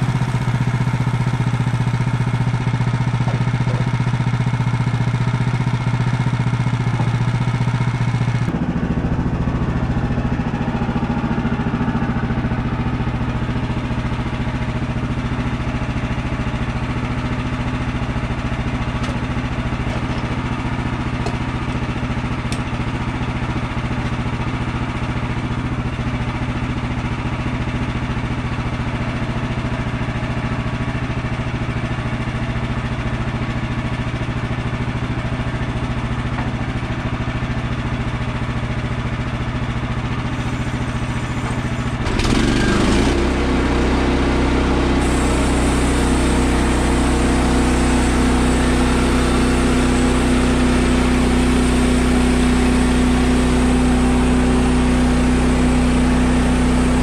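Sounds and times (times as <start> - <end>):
sawmill engine running: 0.0 - 57.0
saw blade cutting log: 3.2 - 4.2, 40.3 - 53.4.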